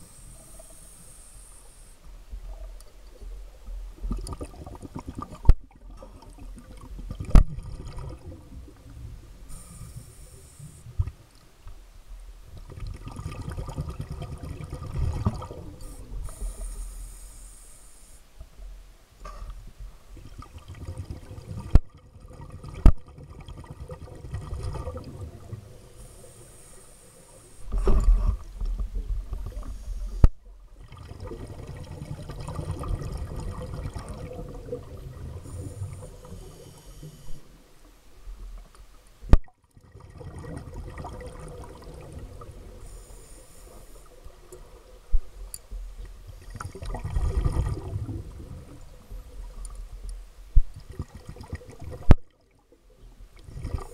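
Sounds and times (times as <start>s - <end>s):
underwater rumble: 0.0s - 53.9s.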